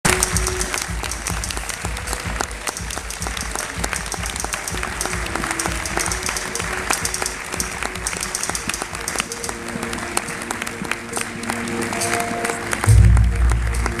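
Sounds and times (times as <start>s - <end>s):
audience applauding: 0.0s - 14.0s
music over sound system: 0.0s - 14.0s.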